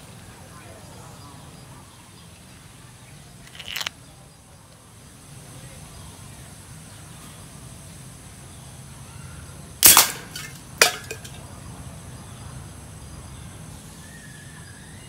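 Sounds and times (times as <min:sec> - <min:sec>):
homemade gun bang: 0:09.8 - 0:11.3
short crack: 0:09.8 - 0:11.4.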